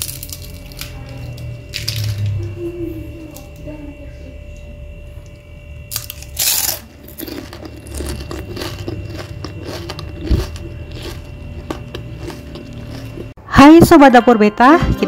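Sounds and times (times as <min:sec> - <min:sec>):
crunchy food bitten and chewed: 0:00.0 - 0:02.4, 0:05.9 - 0:13.4.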